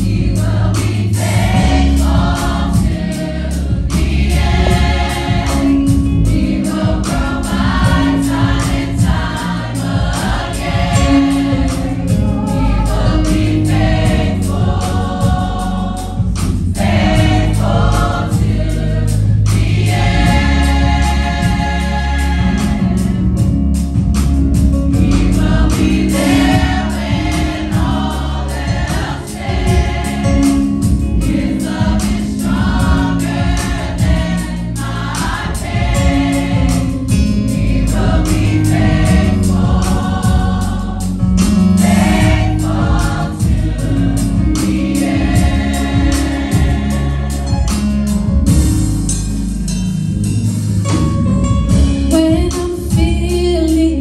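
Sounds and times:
choir singing a gospel song: 0.0 - 49.0
deep instrumental accompaniment: 0.0 - 54.0.

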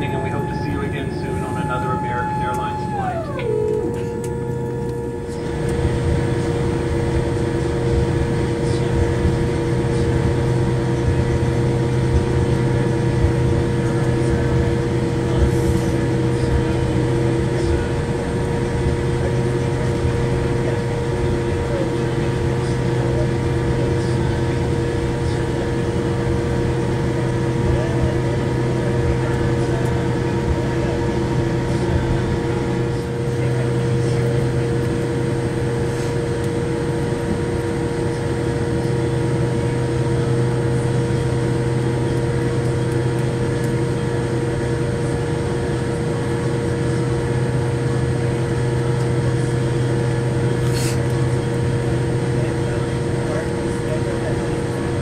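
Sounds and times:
faint high whine: 0.0 - 6.9
aircraft cabin hum: 0.0 - 55.0.

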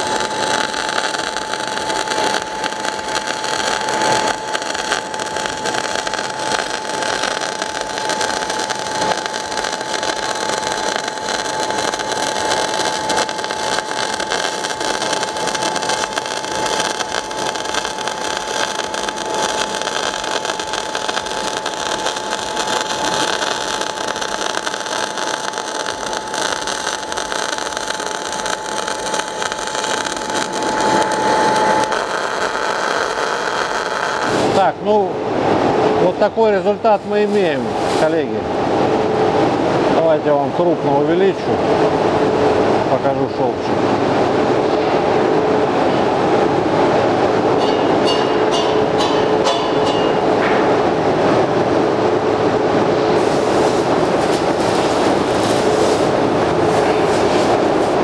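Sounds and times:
welding arc crackling: 0.0 - 35.1, 35.8 - 38.4, 53.0 - 58.0
thin steady whine: 0.0 - 58.0.

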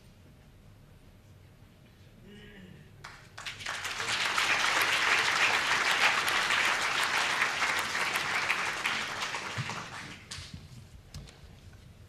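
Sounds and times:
audience applauding: 3.0 - 10.5.

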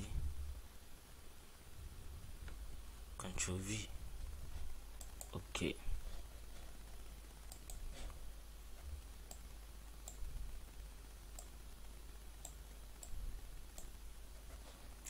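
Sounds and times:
low steady hum: 0.0 - 15.0
computer mouse clicks: 5.0 - 5.4, 7.5 - 7.9, 9.0 - 10.2, 12.4 - 13.9.

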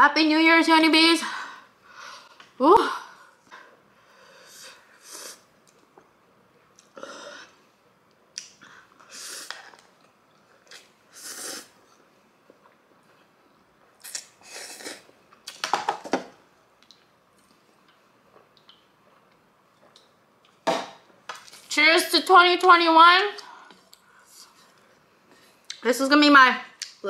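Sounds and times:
slurping and chewing noodles: 14.0 - 15.1.

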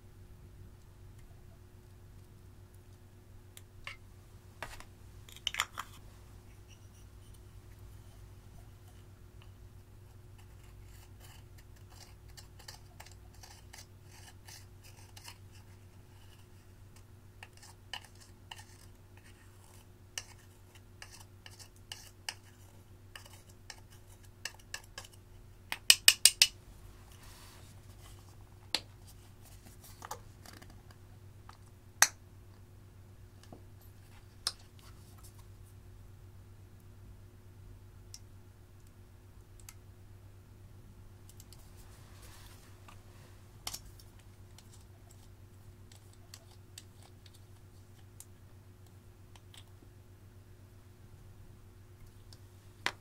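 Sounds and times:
metal spatula scraping eyeshadow: 5.3 - 7.4, 8.0 - 16.7, 17.4 - 25.2.

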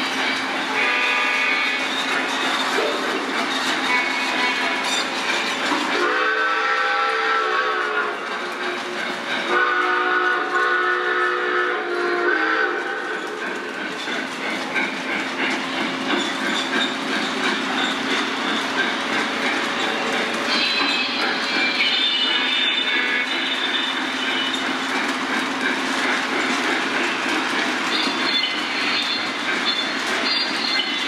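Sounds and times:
locomotive horn chord blasts: 0.8 - 1.8, 9.5 - 12.8.

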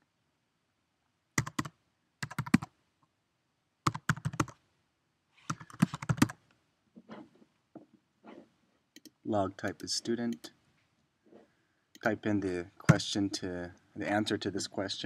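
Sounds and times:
typing on computer keyboard: 1.4 - 2.7, 3.9 - 4.6, 5.5 - 6.4.

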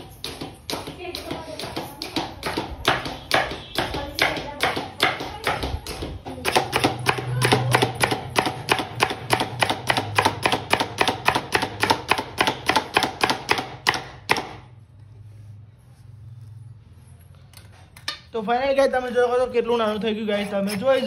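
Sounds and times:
knife chopping on cutting board: 0.2 - 14.7.

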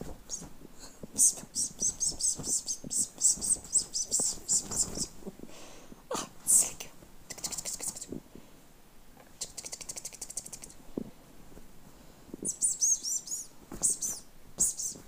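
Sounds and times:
small birds chirping: 0.0 - 0.5, 1.1 - 5.2, 12.4 - 15.0.

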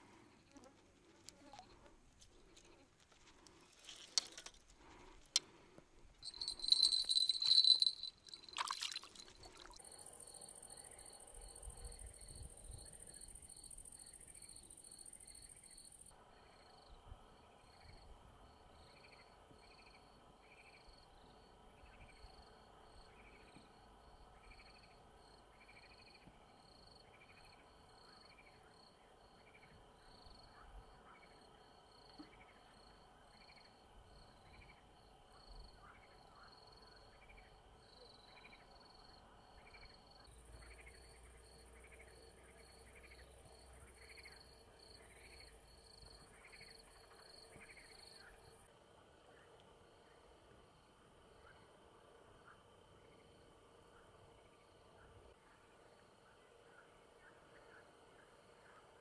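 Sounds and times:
crickets chirping: 6.2 - 48.8.

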